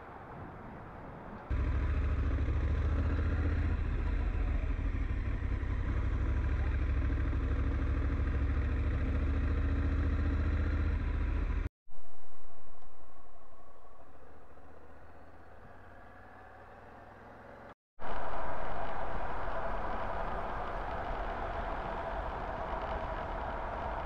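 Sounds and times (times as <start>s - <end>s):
motorcycle engine running: 1.5s - 11.7s
rushing noise: 18.0s - 24.0s.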